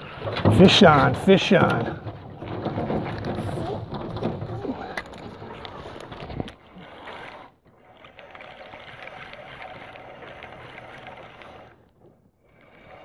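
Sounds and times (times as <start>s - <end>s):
fishing reel ticking whir: 5.9s - 13.0s.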